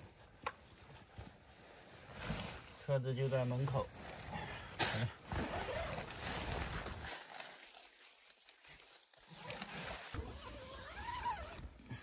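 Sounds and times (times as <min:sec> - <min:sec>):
nylon fabric rustling: 0:00.0 - 0:04.4, 0:05.2 - 0:11.7
tent zipper zipping: 0:04.8 - 0:07.1, 0:09.2 - 0:11.8.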